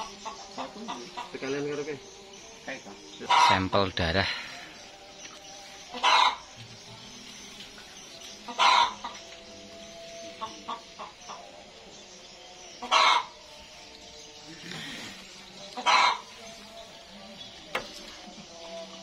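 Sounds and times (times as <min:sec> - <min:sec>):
chicken clucking: 0:00.0 - 0:01.6, 0:03.2 - 0:03.7, 0:05.9 - 0:06.8, 0:08.1 - 0:09.5, 0:10.2 - 0:11.5, 0:12.8 - 0:13.5, 0:15.4 - 0:19.0.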